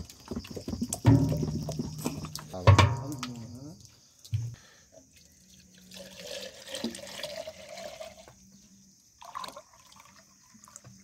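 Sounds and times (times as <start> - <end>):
oil pouring into tin can: 5.5 - 8.4, 9.2 - 11.0.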